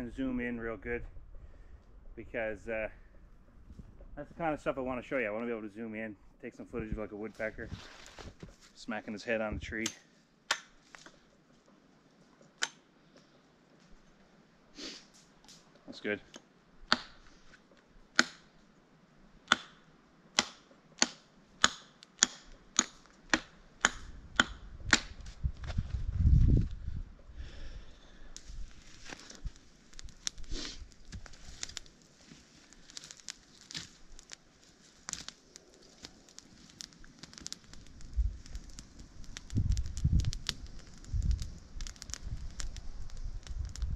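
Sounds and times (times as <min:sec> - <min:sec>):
soft rustle: 0:07.1 - 0:09.2, 0:28.4 - 0:43.9
campfire crackling and popping: 0:14.8 - 0:18.8, 0:19.4 - 0:43.9
twigs snapping: 0:28.2 - 0:43.9.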